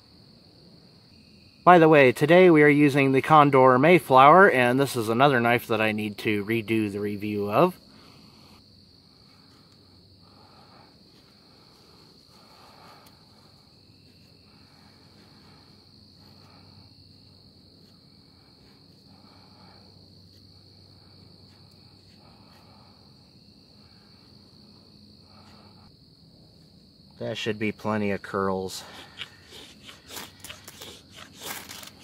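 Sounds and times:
insect trill: 0:00.0 - 0:32.0
knife scraping wood: 0:28.9 - 0:32.0.

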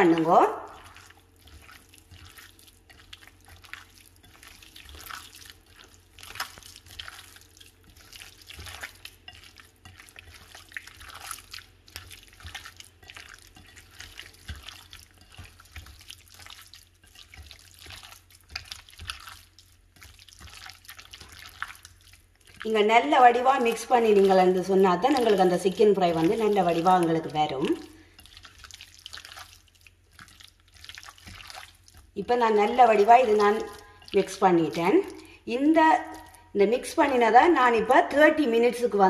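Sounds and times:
hand squelching wet chicken: 0:00.2 - 0:22.6, 0:23.2 - 0:36.4.

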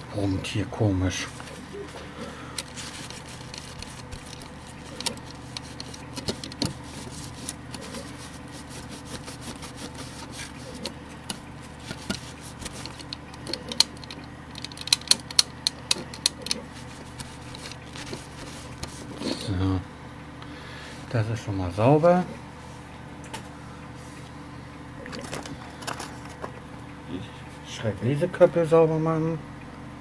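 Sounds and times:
steady low hum: 0:00.0 - 0:30.0
handling clicks: 0:02.6 - 0:06.8, 0:10.7 - 0:19.0
tissue rubbing on metal: 0:02.6 - 0:14.2, 0:16.5 - 0:19.2.

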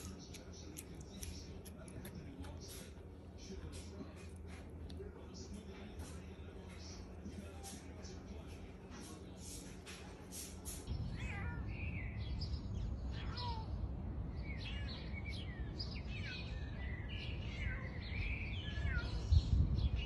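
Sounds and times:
cat meowing: 0:11.1 - 0:11.8, 0:13.1 - 0:13.8, 0:18.6 - 0:19.3.

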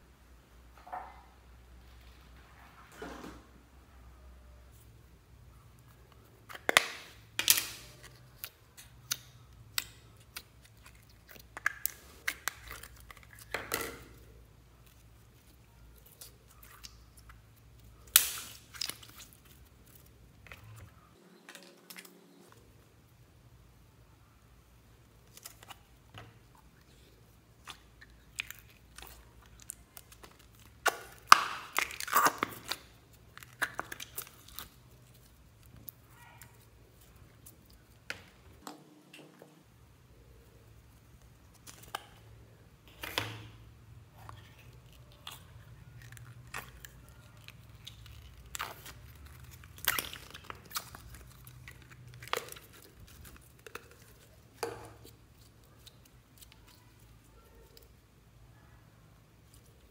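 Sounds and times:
slime squishing and popping: 0:06.3 - 0:20.8, 0:27.5 - 0:38.3, 0:44.3 - 0:57.9.

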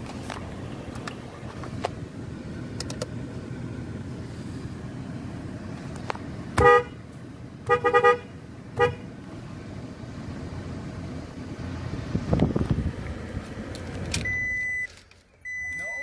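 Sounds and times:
truck horn toots: 0:06.6 - 0:07.0, 0:07.6 - 0:09.1.

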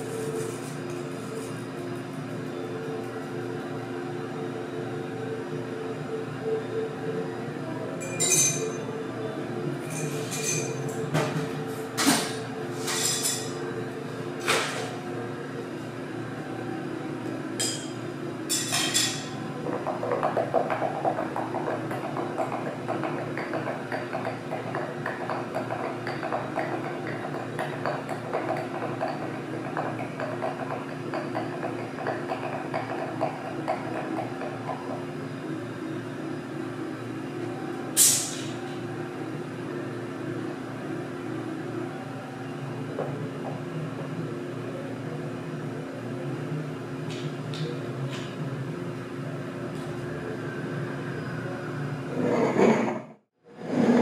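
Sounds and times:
glassware and ice clinking: 0:08.0 - 0:08.8, 0:09.9 - 0:10.9.

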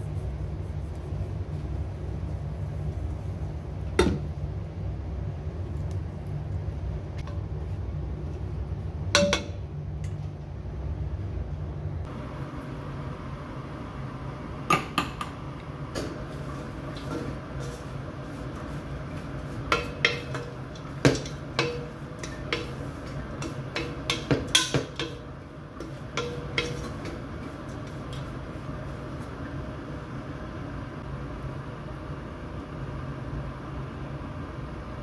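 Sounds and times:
low steady hum: 0:00.0 - 0:35.0
wooden spatula scraping pot: 0:16.3 - 0:28.4
spatula knocking against pot: 0:19.7 - 0:27.2.

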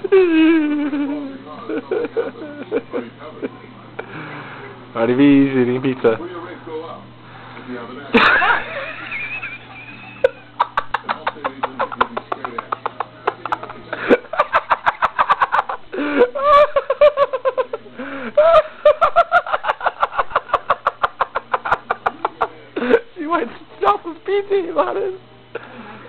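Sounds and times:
person giggling and laughing: 0:00.0 - 0:03.1, 0:18.4 - 0:22.2.

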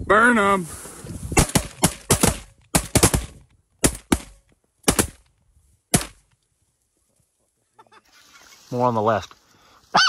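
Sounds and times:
shotgun shots: 0:01.4 - 0:05.2, 0:05.9 - 0:06.2.

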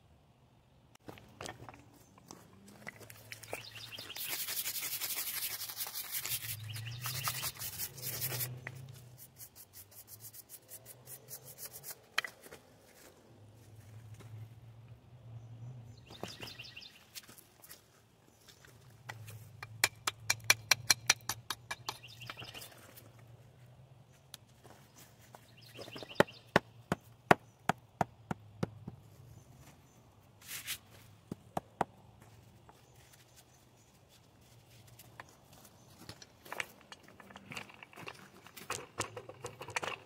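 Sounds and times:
rasping scrapes: 0:03.8 - 0:12.2
hard tapping on stone: 0:19.6 - 0:22.5.

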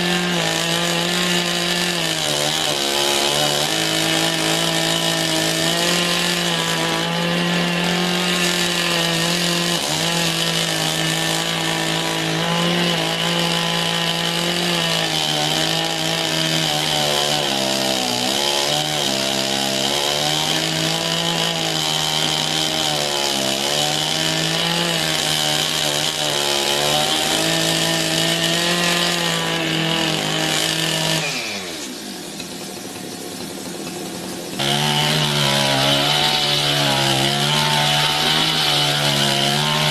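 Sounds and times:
chainsaw sawing log: 0:00.0 - 0:39.9.

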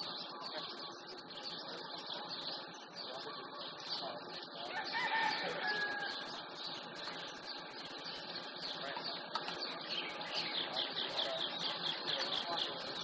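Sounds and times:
insects chirping: 0:00.0 - 0:13.0
rooster crowing: 0:04.7 - 0:06.4.

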